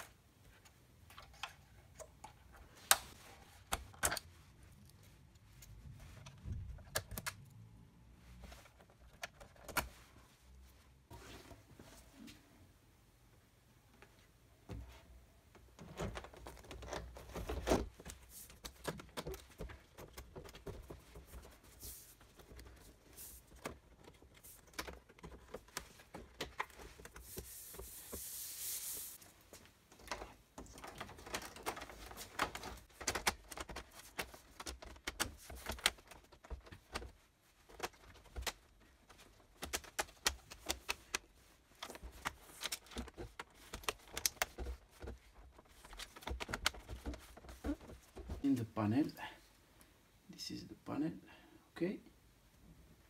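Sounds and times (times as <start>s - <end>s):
plastic and metal parts clicking: 29.9s - 48.4s.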